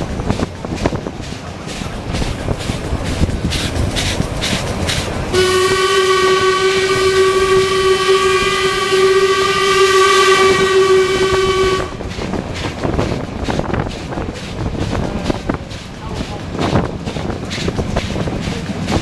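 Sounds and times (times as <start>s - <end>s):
steam locomotive running: 0.0s - 19.0s
steam whistle long blast: 5.3s - 12.0s.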